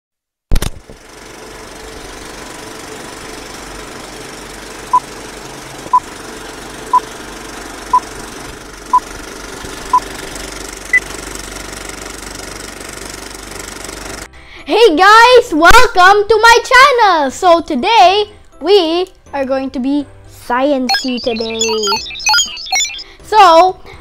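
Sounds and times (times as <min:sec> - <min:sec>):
film projector whirring and clattering: 0:00.5 - 0:14.3
short beeps: 0:20.9 - 0:23.2.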